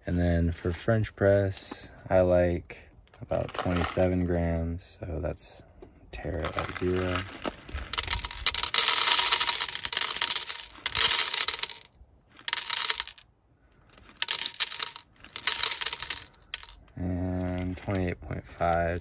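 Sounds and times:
coffee beans clattering into a tray: 6.4s - 13.2s, 14.0s - 16.8s.

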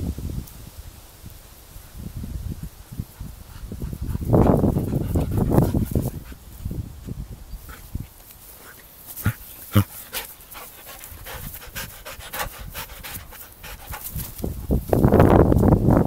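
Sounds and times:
dog panting: 3.1s - 6.4s, 7.6s - 14.6s.

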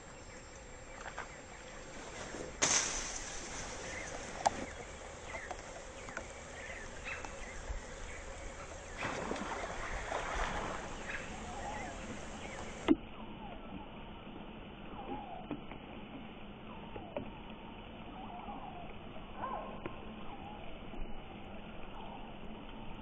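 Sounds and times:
water splash: 2.2s - 5.9s, 6.8s - 13.0s
rain pattering on water: 2.6s - 13.0s.

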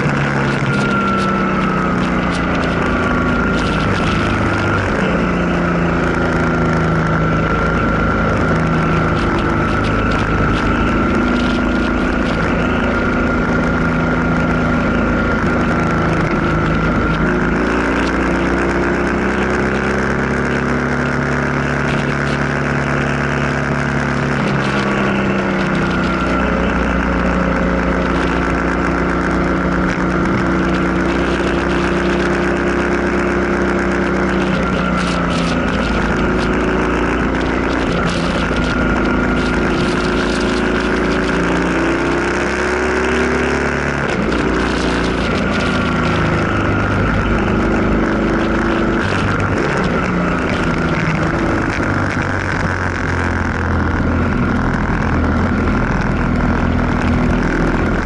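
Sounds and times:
motorcycle engine running: 0.0s - 58.0s
wind and road noise: 0.0s - 58.0s.

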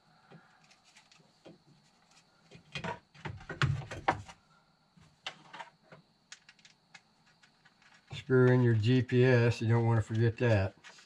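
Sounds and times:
plastic panel knocks and clatter: 2.6s - 4.3s.

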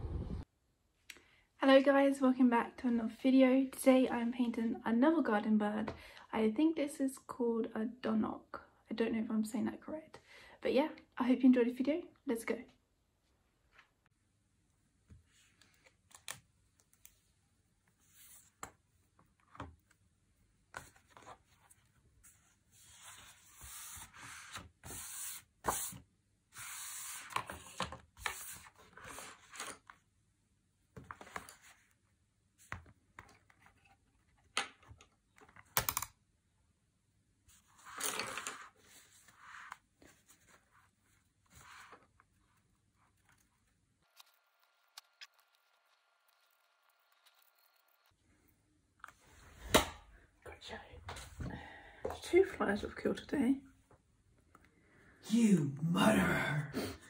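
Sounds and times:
paper pages rustling: 37.5s - 47.8s.

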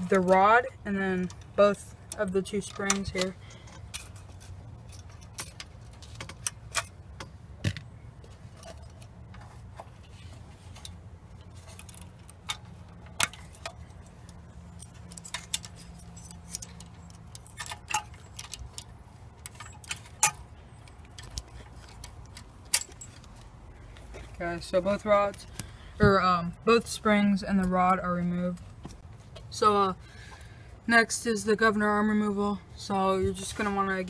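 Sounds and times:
small metal clicks and jingles: 0.0s - 7.4s, 8.2s - 30.0s
low steady hum: 0.0s - 34.0s.

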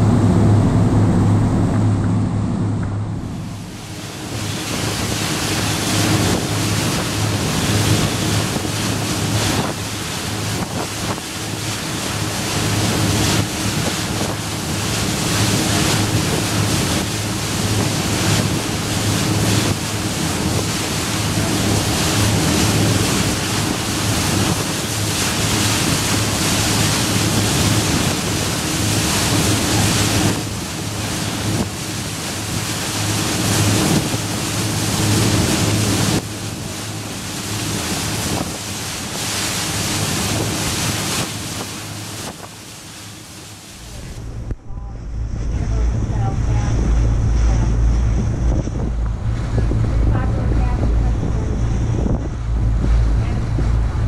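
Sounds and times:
boat engine humming: 0.0s - 54.0s
water rushing past hull: 0.0s - 54.0s
wind buffeting microphone: 0.0s - 54.0s.

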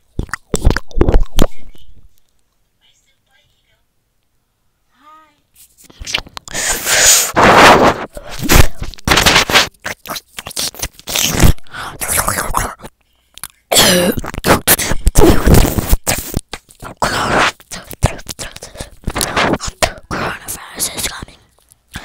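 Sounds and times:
wet mouth clicks and smacks: 0.0s - 1.5s, 9.7s - 11.6s, 12.2s - 13.6s, 16.0s - 20.0s.

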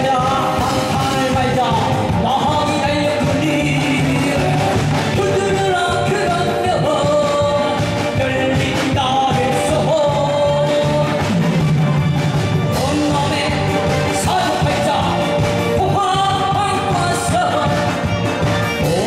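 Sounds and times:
loud backing music: 0.0s - 19.0s
person singing: 0.0s - 19.0s.

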